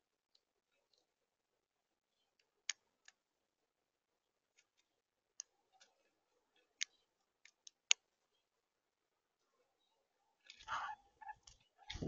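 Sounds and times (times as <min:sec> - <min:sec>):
beaks pecking seed: 0:10.2 - 0:12.0.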